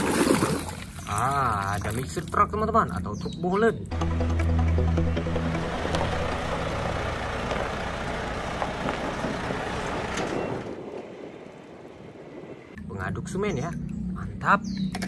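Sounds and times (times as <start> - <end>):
truck diesel engine rumbling: 4.0 - 11.7
tyres on gravel: 5.3 - 11.7.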